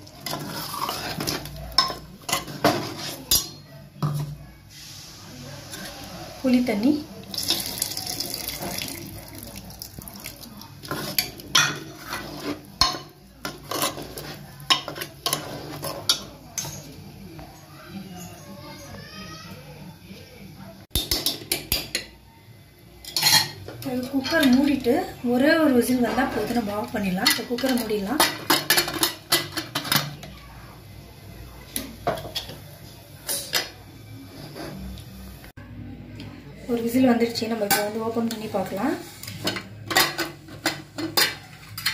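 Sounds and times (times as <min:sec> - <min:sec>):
ladle clinking and scraping pot: 0:00.0 - 0:04.3, 0:10.2 - 0:17.0, 0:23.0 - 0:24.9, 0:25.8 - 0:30.2, 0:37.6 - 0:41.9.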